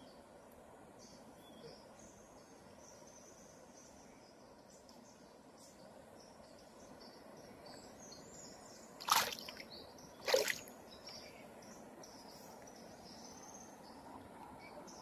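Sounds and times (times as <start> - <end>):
splashes in shallow water: 9.0 - 9.6, 10.2 - 10.7.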